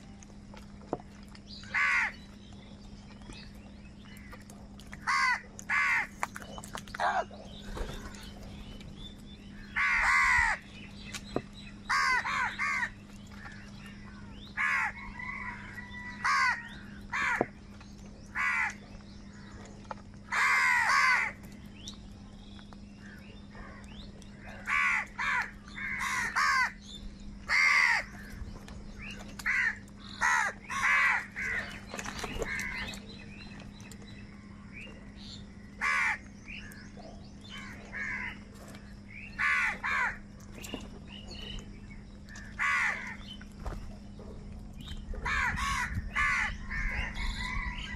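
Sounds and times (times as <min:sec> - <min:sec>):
low steady hum: 0:00.0 - 0:47.9
crows cawing: 0:01.6 - 0:02.2, 0:05.0 - 0:06.1, 0:09.6 - 0:10.7, 0:11.8 - 0:17.5, 0:18.3 - 0:18.8, 0:20.3 - 0:21.4, 0:24.5 - 0:26.8, 0:27.4 - 0:28.4, 0:29.4 - 0:33.0, 0:35.8 - 0:36.7, 0:37.5 - 0:38.5, 0:39.3 - 0:40.2, 0:42.3 - 0:43.3, 0:45.2 - 0:47.9.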